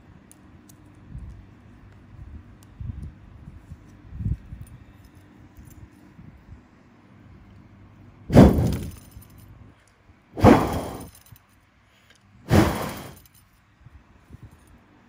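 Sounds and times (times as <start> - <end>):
puffs of breath on microphone: 12.5 - 13.2.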